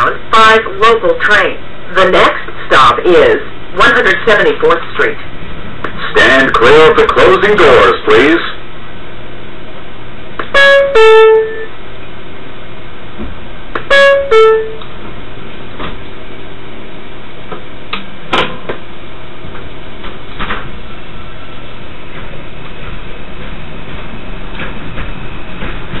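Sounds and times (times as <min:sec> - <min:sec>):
train hum: 0:00.0 - 0:26.0
two-note door chime: 0:10.6 - 0:11.7, 0:13.9 - 0:14.8.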